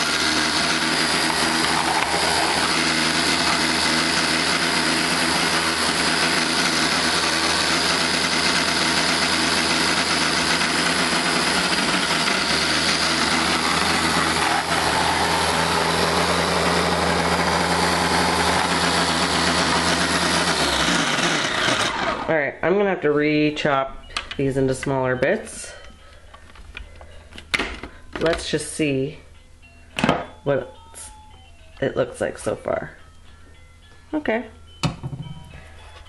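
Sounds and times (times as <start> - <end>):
food maker motor running: 0.0 - 22.3.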